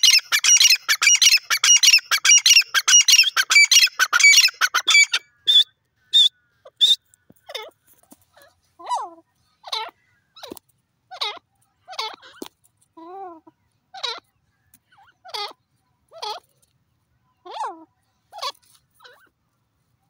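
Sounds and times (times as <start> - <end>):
francolin calling: 0.0 - 7.0.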